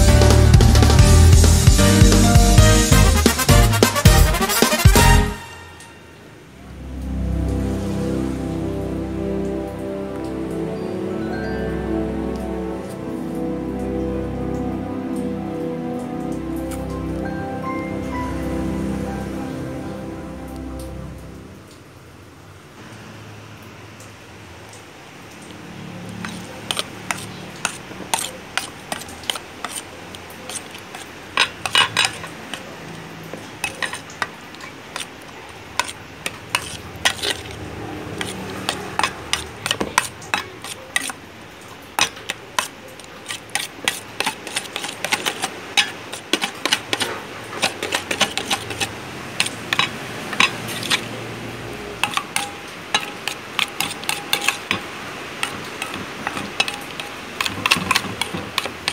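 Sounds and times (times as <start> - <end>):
metal spoon scraping steel bowl: 26.1 - 58.9.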